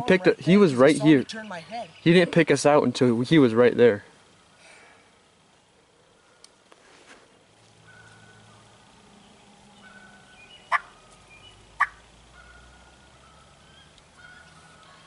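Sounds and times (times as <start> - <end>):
turkey calls: 7.8 - 8.8, 9.8 - 15.0.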